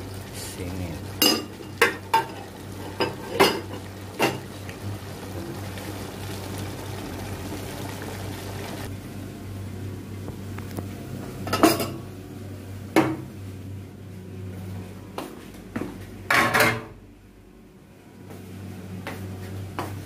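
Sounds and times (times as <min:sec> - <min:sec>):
food sizzling in a wok: 0:00.0 - 0:09.6
metal pots clanking: 0:01.0 - 0:04.6, 0:16.3 - 0:16.9.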